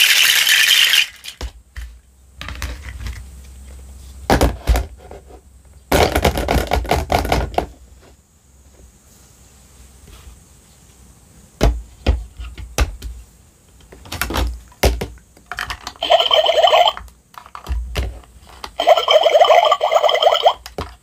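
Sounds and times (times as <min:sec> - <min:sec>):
small toy pump whirring: 0:00.0 - 0:01.4, 0:15.9 - 0:17.6, 0:18.7 - 0:20.7.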